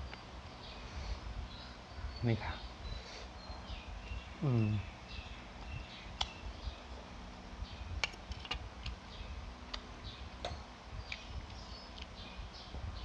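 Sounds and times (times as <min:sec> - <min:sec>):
faint bird chirps: 0:00.0 - 0:07.0.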